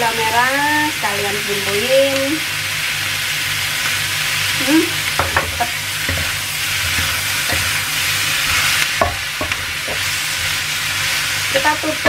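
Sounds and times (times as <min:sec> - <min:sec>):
food sizzling in a wok: 0:00.0 - 0:12.0
spatula scraping a pan: 0:05.2 - 0:11.7.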